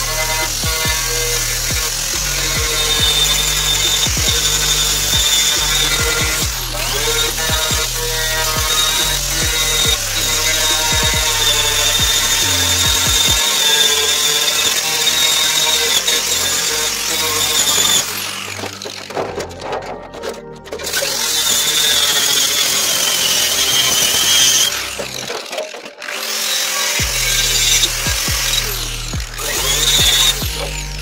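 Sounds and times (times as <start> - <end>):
angle grinder grinding metal: 0.0 - 31.0.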